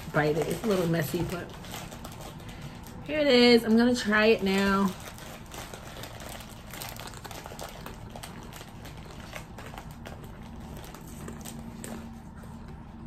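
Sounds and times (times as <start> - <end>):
chewing with crunches: 4.9 - 12.8.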